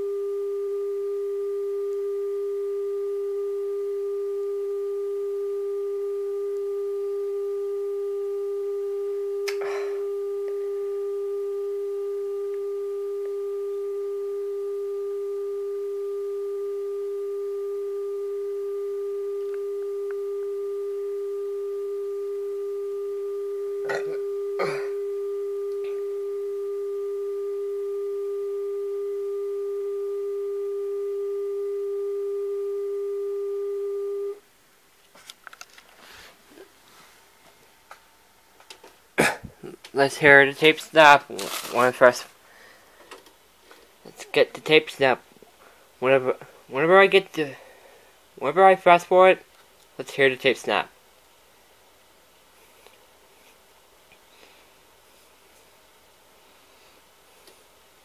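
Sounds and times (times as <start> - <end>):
steady electronic tone: 0.0 - 34.4.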